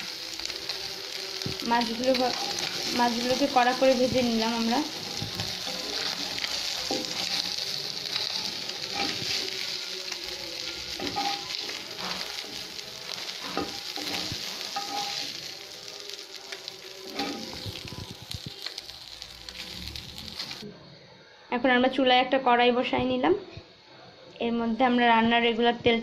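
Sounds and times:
fish sizzling in hot oil: 0:00.0 - 0:20.6
metal spatula scraping pan: 0:13.4 - 0:15.3.

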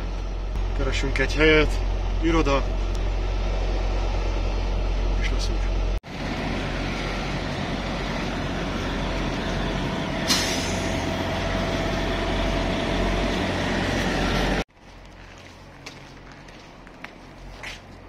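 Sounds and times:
diesel trucks idling: 0:00.0 - 0:18.0
air brake hiss: 0:10.3 - 0:11.0.

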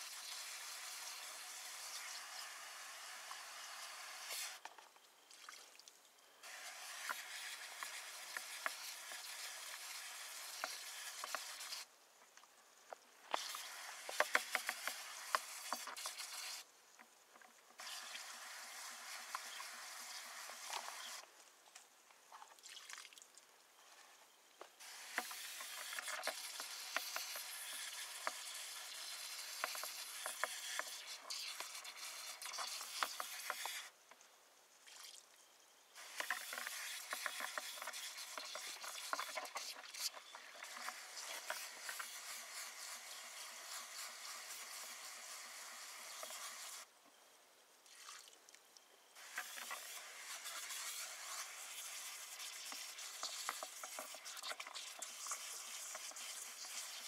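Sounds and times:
drill whisking slurry: 0:06.4 - 0:11.9, 0:24.8 - 0:33.9, 0:36.0 - 0:46.9, 0:49.2 - 0:57.0.

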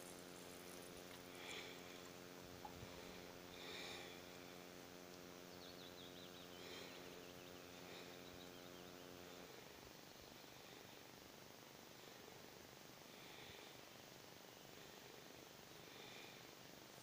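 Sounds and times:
faint bird chirping: 0:00.0 - 0:11.0
low steady hum: 0:00.0 - 0:17.0.

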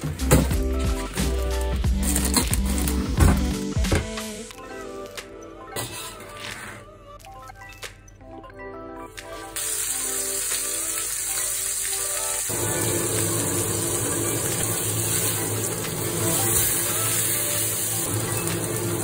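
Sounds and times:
fish sizzling in hot oil: 0:09.6 - 0:19.0.

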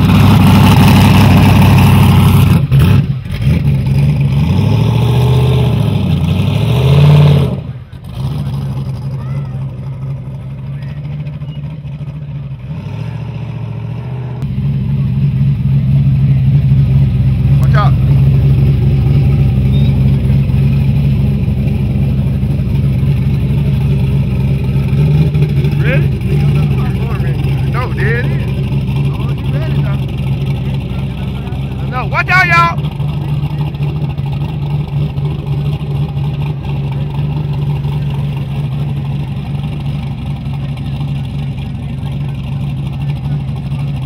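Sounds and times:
car engine choppy idle: 0:07.6 - 0:13.2, 0:14.4 - 0:44.0.

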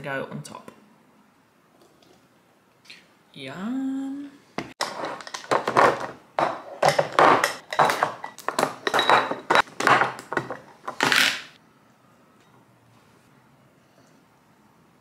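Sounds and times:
glass containers clinking on stone: 0:04.8 - 0:10.6.

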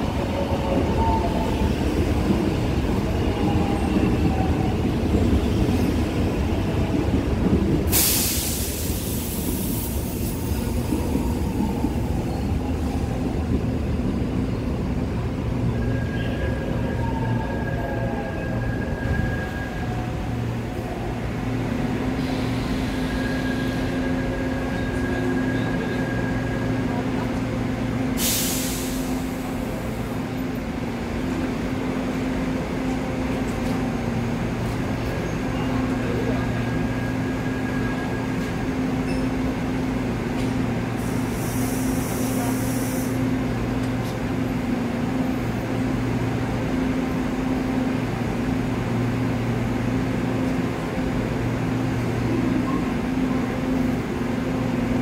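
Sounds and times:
train electric hum: 0:00.0 - 0:55.0
air release hiss: 0:07.9 - 0:10.2, 0:28.2 - 0:29.2, 0:41.0 - 0:43.2.

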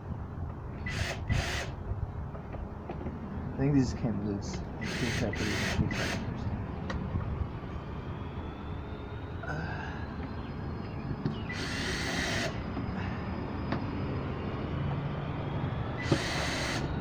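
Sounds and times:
steady low rumble: 0:00.0 - 0:17.0
cordless drill driving screws: 0:00.9 - 0:01.7, 0:04.8 - 0:06.2, 0:11.5 - 0:12.6, 0:16.0 - 0:16.9.

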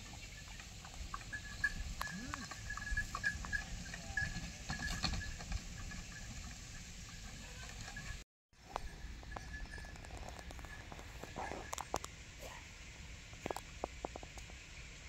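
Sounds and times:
wooden cart rattling and knocking: 0:00.1 - 0:06.6.

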